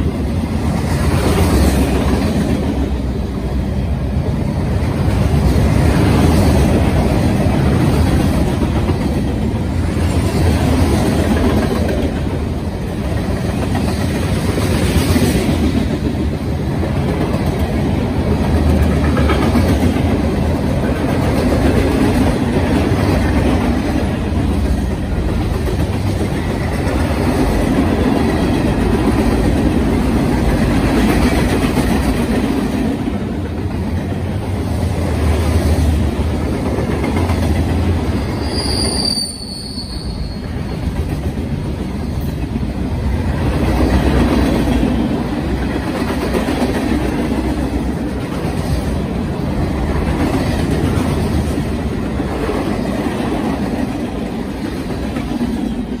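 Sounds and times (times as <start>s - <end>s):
freight train cars rolling past: 0.0s - 56.0s
high squeal falling in pitch: 38.4s - 40.6s.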